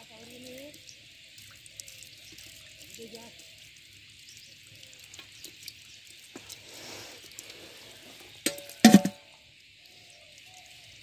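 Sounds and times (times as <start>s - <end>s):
faint steady hiss: 0.0s - 11.0s
sharp metallic knocks: 8.5s - 9.2s.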